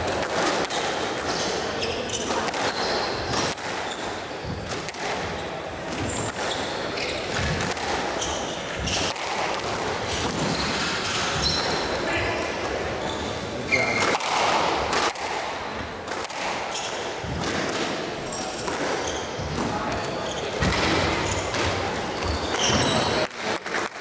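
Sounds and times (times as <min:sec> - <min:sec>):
squash ball striking racquets and walls: 0:00.0 - 0:24.0
shoes squeaking on wooden floor: 0:01.2 - 0:14.1, 0:18.2 - 0:23.3.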